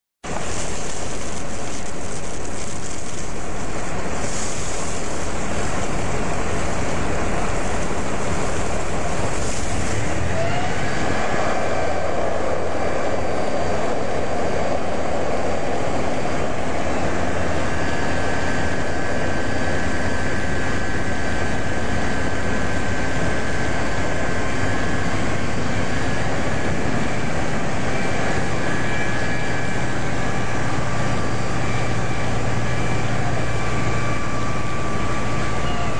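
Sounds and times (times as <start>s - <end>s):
fire engine pumps running: 0.2s - 35.9s.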